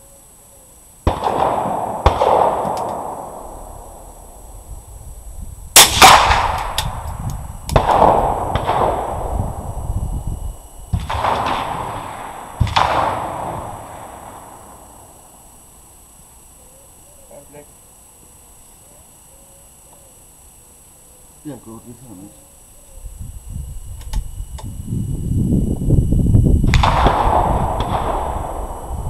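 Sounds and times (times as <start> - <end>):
rifle gunshots echoing: 1.1 - 4.3, 5.8 - 7.1, 7.7 - 9.4, 11.0 - 15.1, 26.7 - 29.0.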